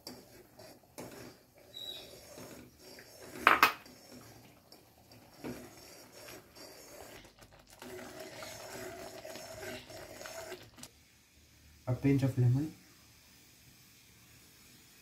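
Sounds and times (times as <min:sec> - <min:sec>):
metal spoon scraping a pot: 0:00.0 - 0:10.8.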